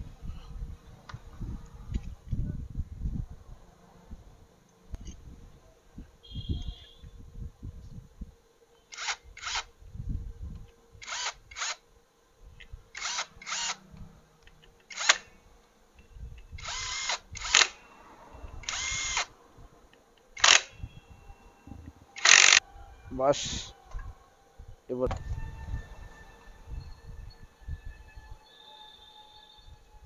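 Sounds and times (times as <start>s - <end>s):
impact wrench bursts: 8.9s - 9.7s, 11.0s - 11.8s, 13.0s - 13.8s, 14.9s - 15.3s, 16.6s - 17.8s, 18.6s - 19.3s, 20.4s - 20.8s, 22.2s - 22.6s.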